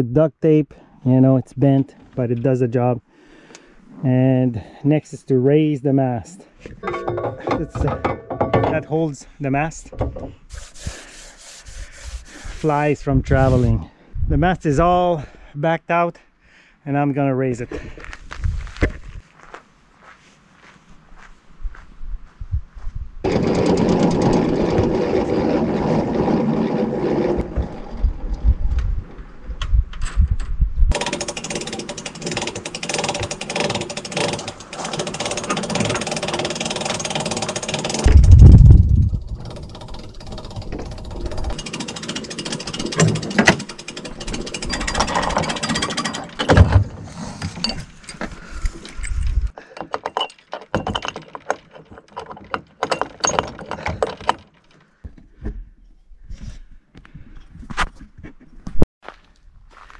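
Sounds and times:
rigging rattling and clanking: 6.6 - 10.4, 23.2 - 28.1, 30.0 - 55.6.

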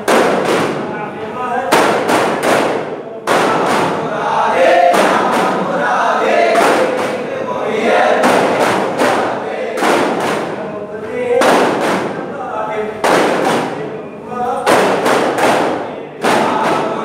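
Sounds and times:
frame drums beating: 0.0 - 1.1, 1.7 - 12.4, 13.0 - 17.0
group chanting: 0.0 - 17.0.

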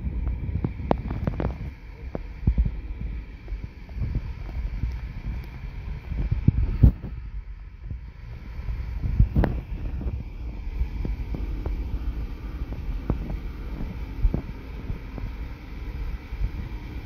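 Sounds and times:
wind buffeting a microphone: 0.0 - 17.0.

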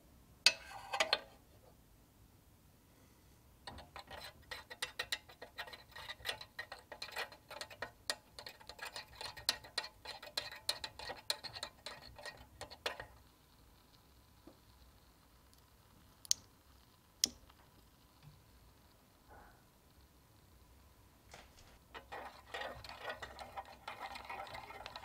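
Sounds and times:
whisk clicking against metal saucepan: 3.7 - 13.3, 21.9 - 25.0.

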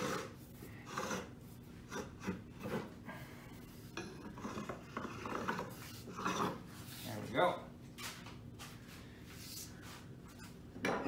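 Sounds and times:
marking tool scraping wood: 0.0 - 3.0.

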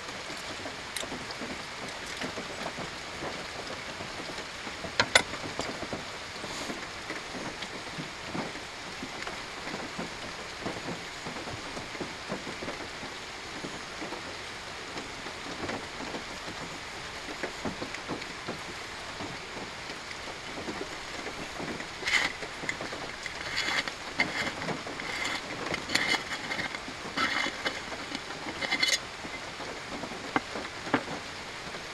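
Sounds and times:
steady rain falling: 0.0 - 31.9.

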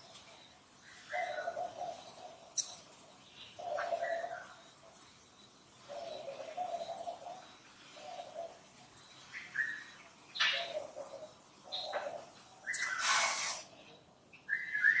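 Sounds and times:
dove cooing: 0.0 - 13.6
bird chirps: 0.0 - 15.0
hissy bursts: 12.8 - 13.7.

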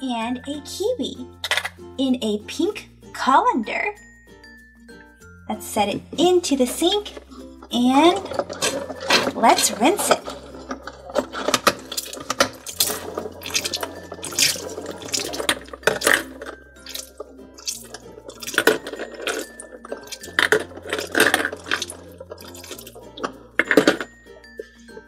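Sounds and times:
water trickling from faucet: 11.9 - 16.0, 16.8 - 18.6, 21.6 - 23.1.

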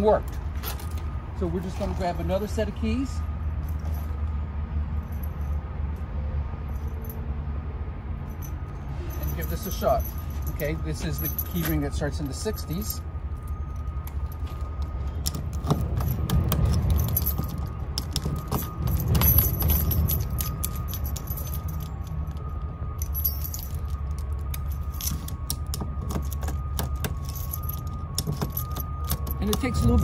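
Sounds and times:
keys jangling and clicking: 3.6 - 4.3, 8.2 - 30.0
key turning in car door lock: 13.8 - 29.9.

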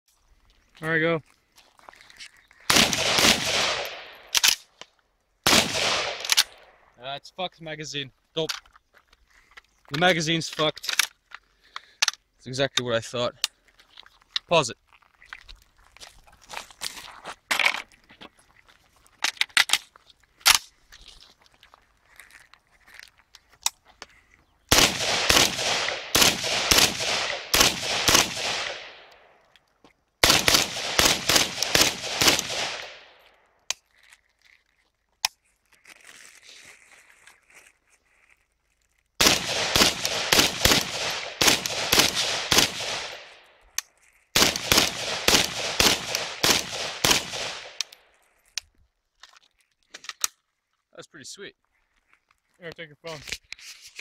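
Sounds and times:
rifle rapid shots: 2.7 - 4.5, 5.5 - 6.6, 24.7 - 29.0, 30.2 - 33.1, 39.2 - 43.4, 44.4 - 47.8
rifle handling clicks: 3.8 - 4.9, 5.8 - 6.6, 44.5 - 50.4.

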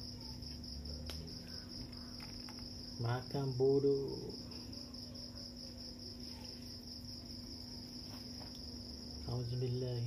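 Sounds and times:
crickets chirping: 0.0 - 10.0
steady low hum: 0.0 - 10.0.

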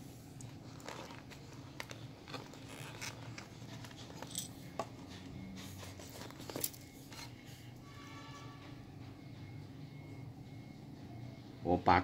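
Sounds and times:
wristwatch handling clicks and rustles: 0.4 - 4.9, 5.9 - 7.0.

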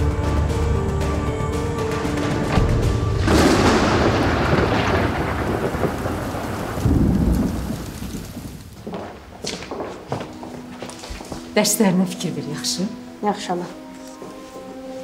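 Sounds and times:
thunder rumbling: 1.9 - 9.4
rain: 3.1 - 9.4.

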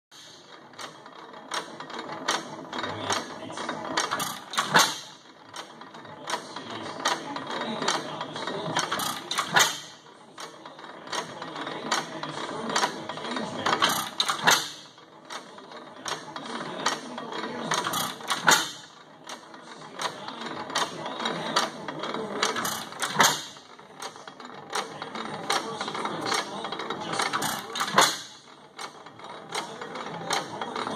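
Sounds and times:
valve gear clicking: 13.8 - 14.9.

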